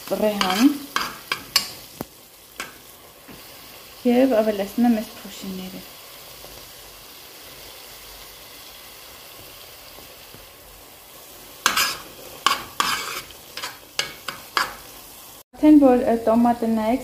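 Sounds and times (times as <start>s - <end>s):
sauce sizzling in a pot: 0.0s - 16.9s
metal spoon scraping a pot: 0.3s - 1.9s, 11.6s - 14.8s.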